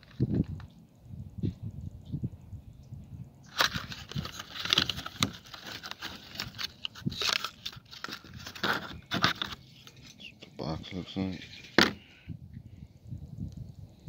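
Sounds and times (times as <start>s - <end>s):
cardboard box crinkling: 3.5s - 10.0s.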